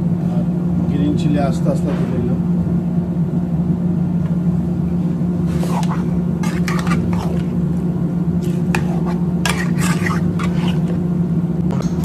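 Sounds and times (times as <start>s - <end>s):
steady low hum: 0.0s - 12.0s
utensil scraping meat in metal pan: 5.5s - 7.7s, 8.4s - 11.0s.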